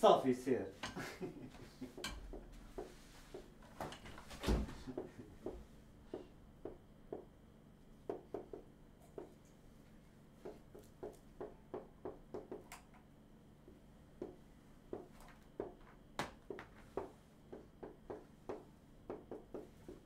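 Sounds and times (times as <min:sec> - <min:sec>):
marker tapping and scratching: 0:01.8 - 0:03.6, 0:05.0 - 0:07.3, 0:08.0 - 0:09.5, 0:10.4 - 0:13.0, 0:13.7 - 0:20.0.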